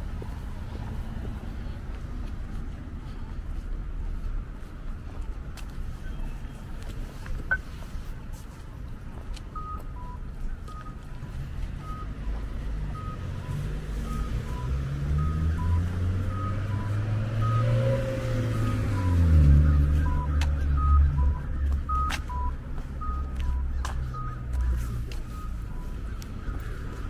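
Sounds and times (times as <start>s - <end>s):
heavy vehicle engine hum: 0.0s - 27.0s
street traffic: 0.0s - 27.0s
electronic two-tone beeps: 9.6s - 11.0s, 11.8s - 12.2s, 12.9s - 25.9s.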